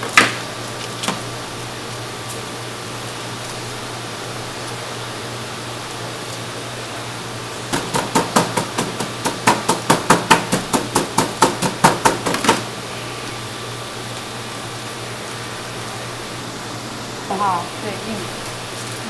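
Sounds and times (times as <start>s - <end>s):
steady hum: 0.0s - 19.0s
cleaver chopping raw meat: 7.7s - 12.6s.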